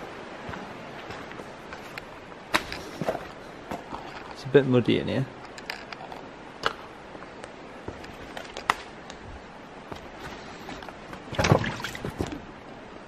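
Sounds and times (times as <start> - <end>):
footsteps on muddy path: 0.0 - 4.4.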